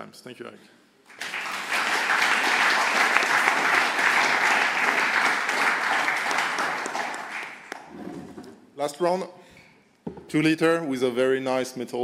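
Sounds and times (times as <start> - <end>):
audience applauding: 1.1 - 7.9.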